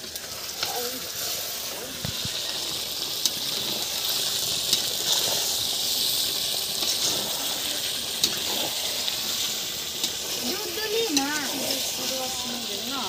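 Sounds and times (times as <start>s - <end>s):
curry sizzling and bubbling: 0.0s - 13.0s.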